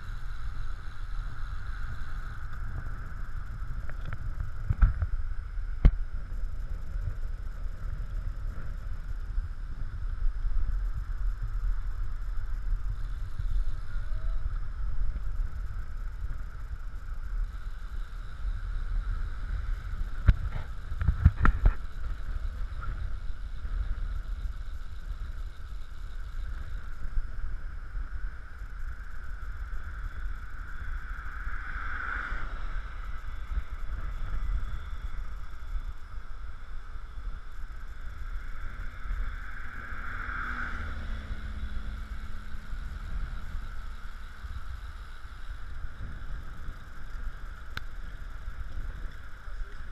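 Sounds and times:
tyres humming on road: 0.0s - 49.9s
wind rumbling over microphone: 0.0s - 49.9s.

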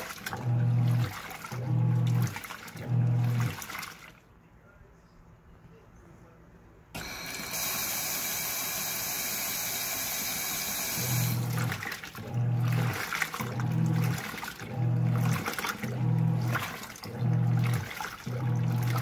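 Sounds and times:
washing machine motor humming: 0.0s - 4.2s, 7.0s - 19.0s
water sloshing in tub: 0.0s - 4.4s, 11.0s - 19.0s.

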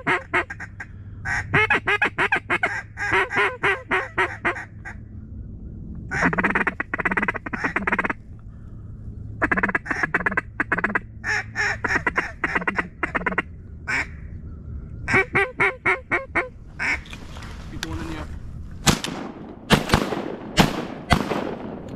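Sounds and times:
duck call quacks: 0.0s - 5.0s, 6.1s - 8.2s, 9.4s - 14.1s, 15.1s - 17.0s.

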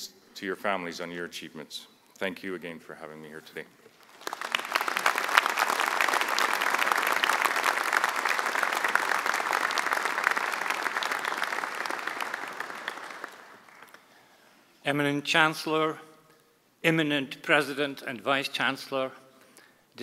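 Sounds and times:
audience applause: 4.0s - 14.1s.

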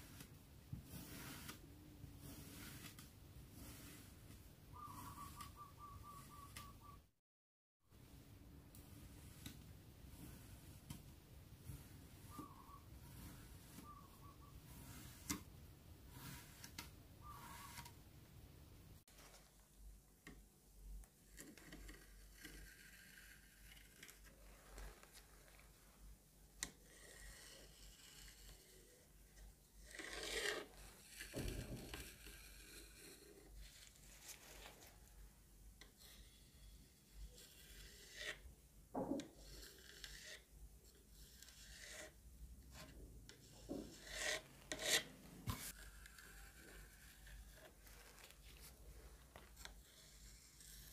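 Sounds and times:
tool scraping sand: 0.0s - 6.8s, 8.7s - 18.0s.

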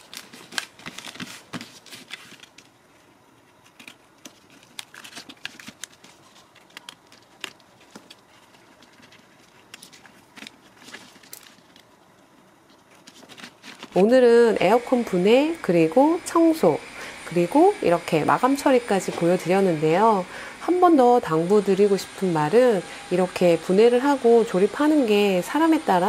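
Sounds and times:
plastic sheet crinkling and rubbing: 0.0s - 14.2s.

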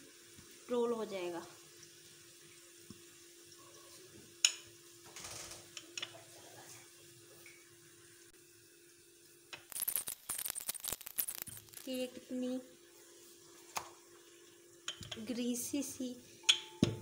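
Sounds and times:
knock on marble worktop: 16.8s - 17.0s.

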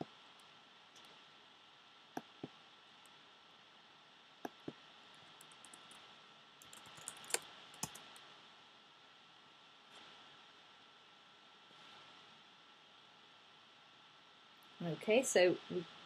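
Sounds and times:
keyboard typing: 4.5s - 6.0s, 6.6s - 8.2s
computer mouse clicks: 5.4s - 6.0s, 6.6s - 8.2s.

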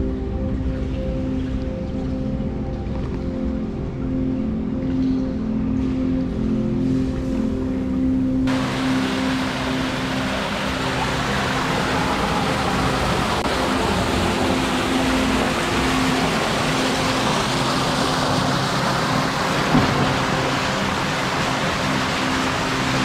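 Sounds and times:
water rushing and splashing: 8.5s - 23.0s.

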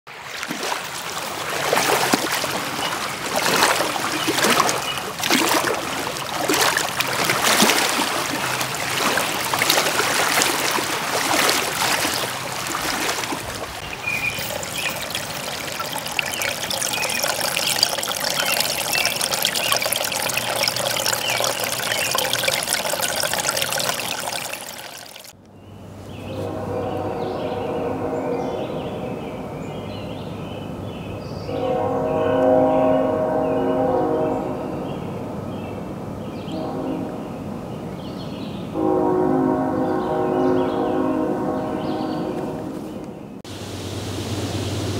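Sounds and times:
stream trickling over log: 0.1s - 25.4s
small waves over shore stones: 0.2s - 25.3s.

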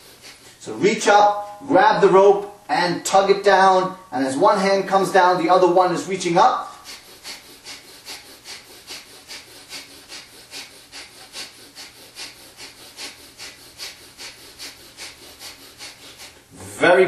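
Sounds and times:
forceful nasal exhales: 6.6s - 16.8s.

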